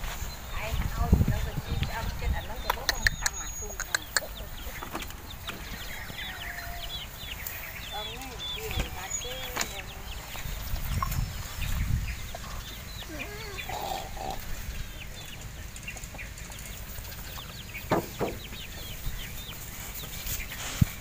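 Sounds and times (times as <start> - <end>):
birds chirping: 0.0 - 21.0
wind buffeting microphone: 0.0 - 21.0
sharp clicks: 2.6 - 4.4.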